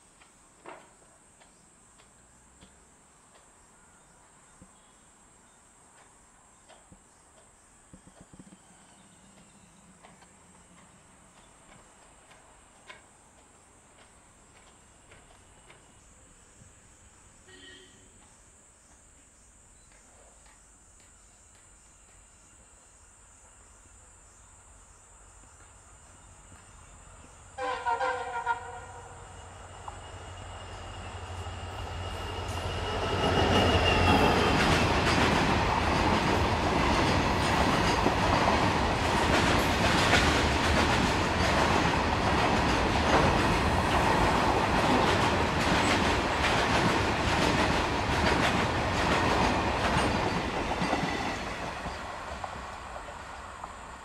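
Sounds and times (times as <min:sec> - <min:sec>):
train horn toots: 0:17.4 - 0:18.3, 0:27.6 - 0:29.5
train wheels clattering over rails: 0:29.8 - 0:53.8.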